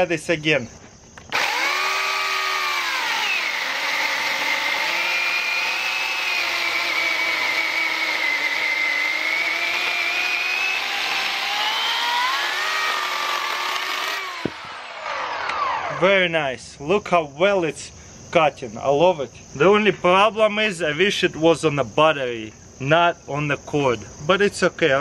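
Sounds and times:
electric chainsaw cutting log: 1.2 - 16.1.

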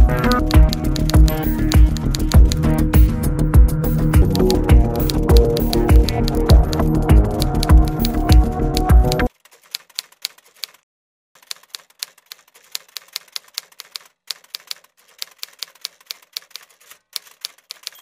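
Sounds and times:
typewriter keystroke clacks: 0.0 - 3.2, 3.8 - 10.8, 11.4 - 18.0.

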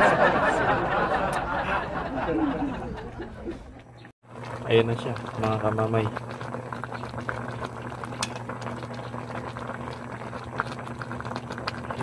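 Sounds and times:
broth bubbling in a pot: 3.7 - 12.0.

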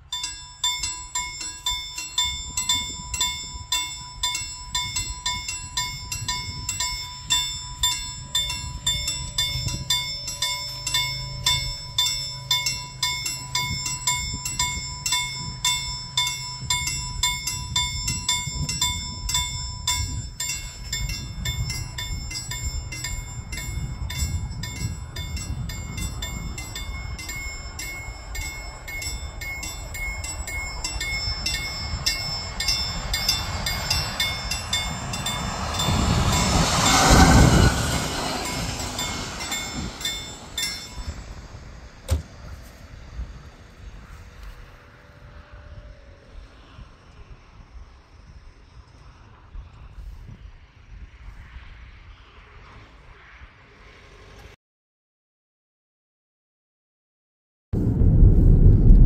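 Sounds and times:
level crossing bell ringing: 0.0 - 41.4
low rumble: 0.0 - 47.0, 57.8 - 59.0.

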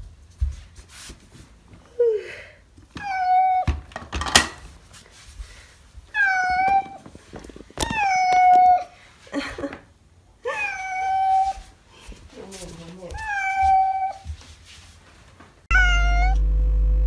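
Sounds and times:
cat meowing: 6.1 - 7.0, 13.1 - 14.2, 15.7 - 16.4.

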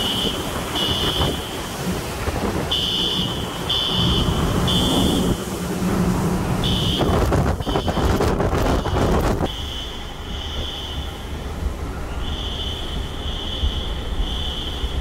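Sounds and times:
strong wind: 0.0 - 9.5
driven rain: 0.0 - 15.0.

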